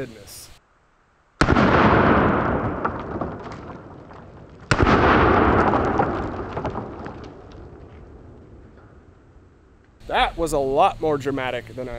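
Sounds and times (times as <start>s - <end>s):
slowed rifle shots booming: 1.4s - 9.9s.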